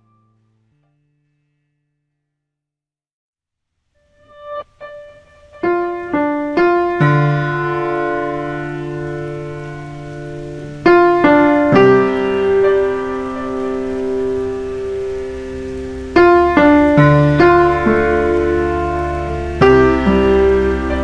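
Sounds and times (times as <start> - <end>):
slow piano music: 4.1 - 21.0.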